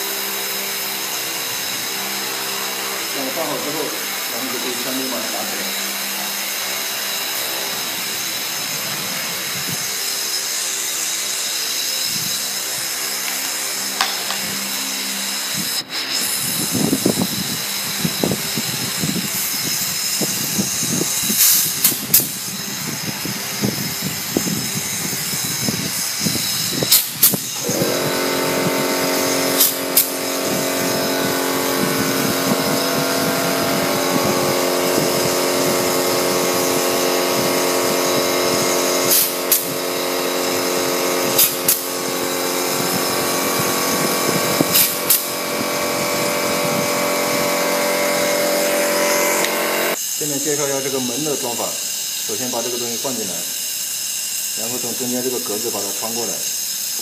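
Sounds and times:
steady hum: 0.0s - 52.3s
pneumatic clip gun shots: 4.6s - 50.2s.

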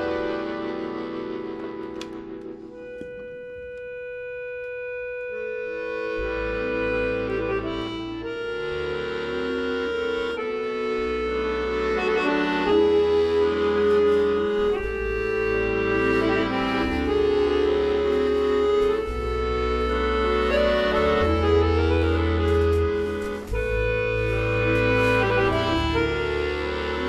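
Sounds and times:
accordion duet playing slow tune: 0.0s - 27.0s.

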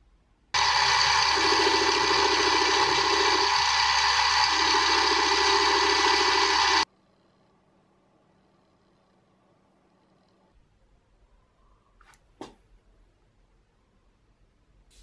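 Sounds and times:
drill press polishing: 0.6s - 6.8s.

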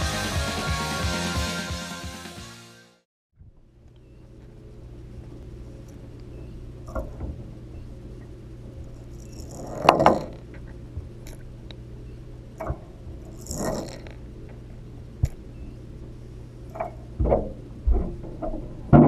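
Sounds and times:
steady low hum: 3.4s - 19.0s.

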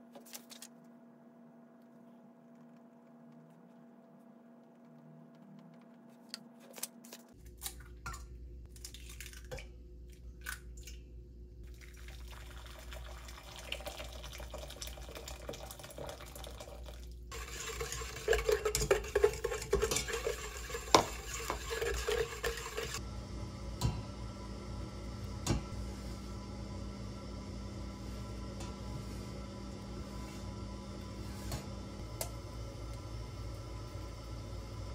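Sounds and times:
water pouring into a glass bowl: 11.7s - 18.4s
spatula scraping a metal bowl: 17.3s - 23.0s.

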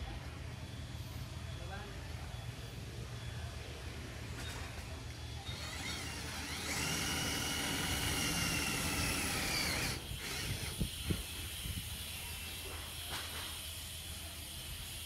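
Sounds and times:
power drill whining: 5.4s - 11.2s.

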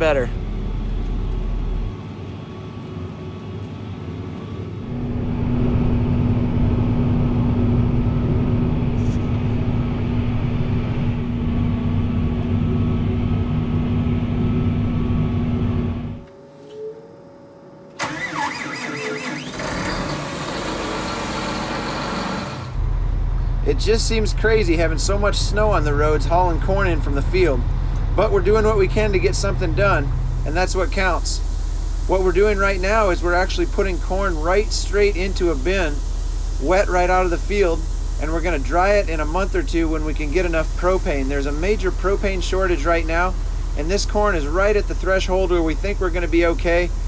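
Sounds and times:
vehicle engine: 0.0s - 16.2s, 18.0s - 32.9s
tractor engine running: 18.0s - 31.9s.

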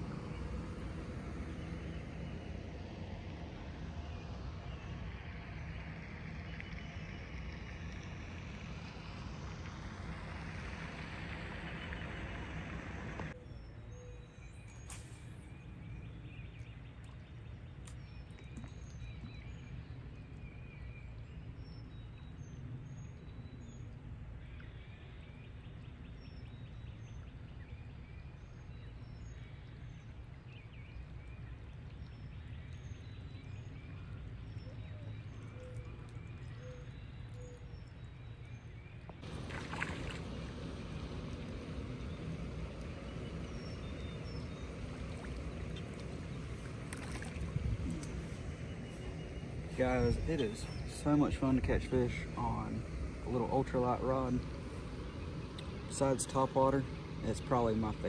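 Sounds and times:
low rumble: 0.0s - 13.4s, 31.0s - 58.0s
small birds chirping: 4.0s - 58.0s
fish splashing in water: 39.2s - 48.7s.

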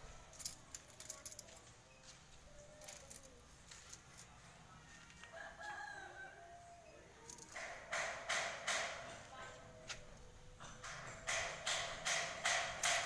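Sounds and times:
rooster crowing: 5.2s - 7.1s.

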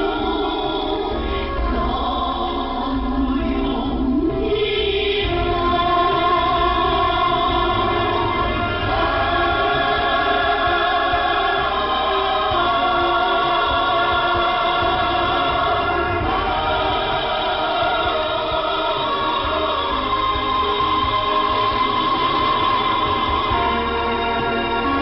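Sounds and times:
choir singing over radio: 0.0s - 25.0s.

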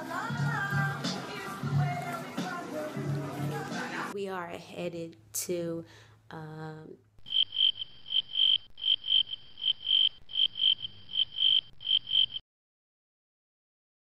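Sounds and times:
cricket chirping: 7.2s - 12.4s.

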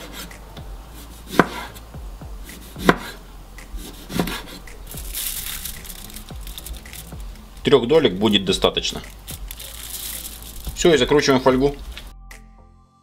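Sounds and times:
knife slicing lemon on board: 1.0s - 1.8s, 2.4s - 4.8s.

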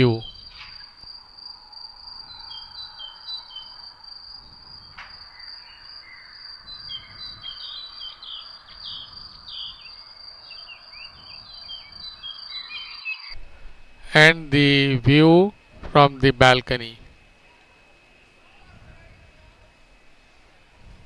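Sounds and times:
birds chirping: 0.0s - 1.0s, 2.0s - 13.4s
high insect drone: 0.0s - 21.0s.

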